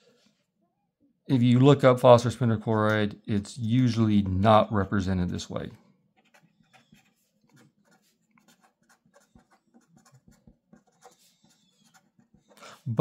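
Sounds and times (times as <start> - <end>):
pen scratching on paper: 6.1 - 13.0.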